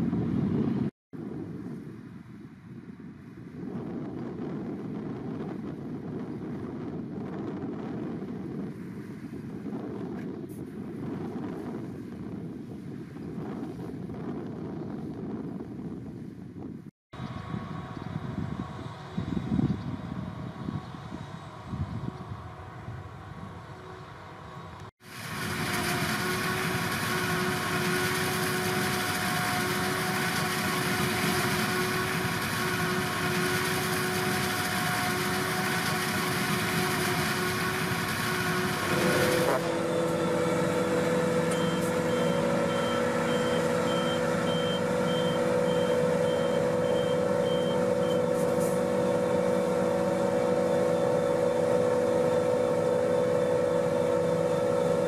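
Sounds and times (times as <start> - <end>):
diesel machinery engines running: 17.2 - 55.0
reversing beeper: 39.6 - 49.4.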